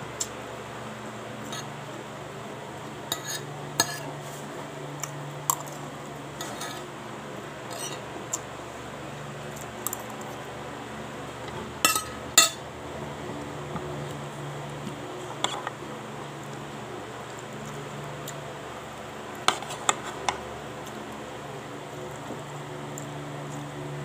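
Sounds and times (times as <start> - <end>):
metal spoon scraping a plate: 1.4 - 1.7, 3.1 - 4.1, 6.4 - 6.9, 7.7 - 8.0.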